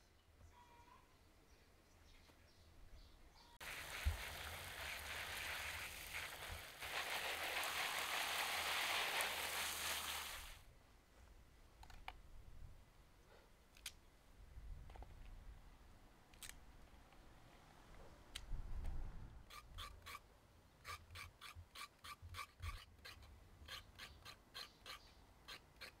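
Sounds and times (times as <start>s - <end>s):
garden hose spraying water: 3.6s - 10.6s
vegetables rustling: 3.6s - 10.6s.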